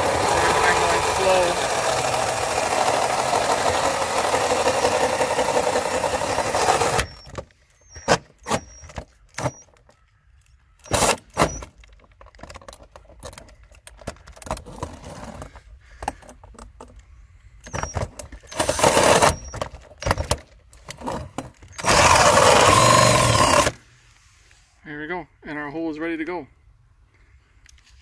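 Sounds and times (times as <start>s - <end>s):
drill grinding through siding: 0.0s - 9.7s, 10.8s - 11.8s, 17.6s - 23.9s.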